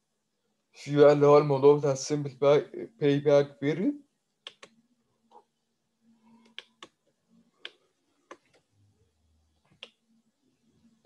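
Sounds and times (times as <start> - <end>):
computer mouse clicking: 6.3 - 7.0.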